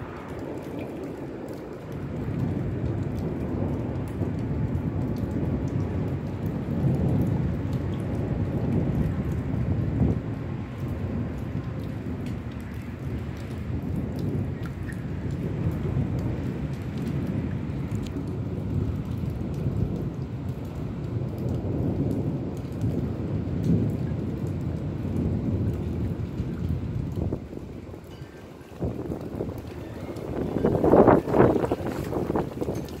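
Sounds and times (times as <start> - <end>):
rain falling: 0.0 - 33.0
rolling thunder: 0.0 - 33.0.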